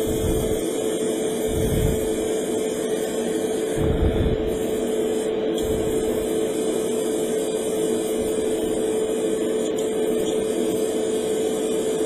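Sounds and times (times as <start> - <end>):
extractor fan drone: 0.0 - 6.9
compressor hum: 0.0 - 12.0.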